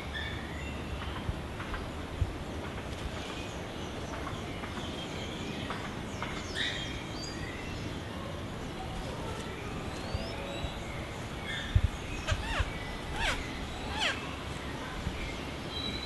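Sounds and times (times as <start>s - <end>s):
steady background noise: 0.0s - 16.0s
bird calls and chirps: 2.5s - 8.2s, 9.4s - 16.0s.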